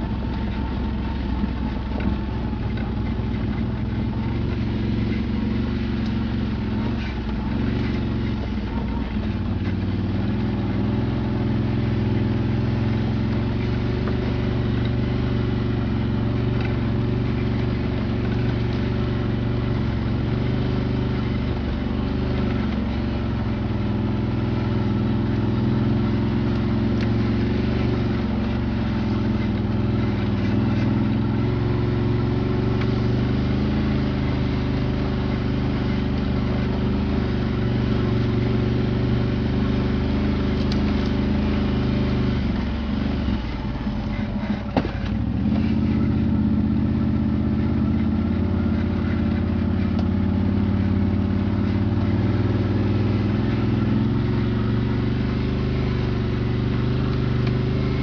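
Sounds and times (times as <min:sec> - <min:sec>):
quad bike engine running: 0:00.0 - 0:58.0.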